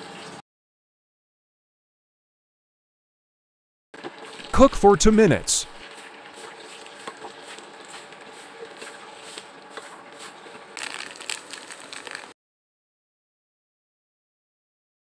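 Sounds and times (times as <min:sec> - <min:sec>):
food frying in oil: 0:05.8 - 0:12.4.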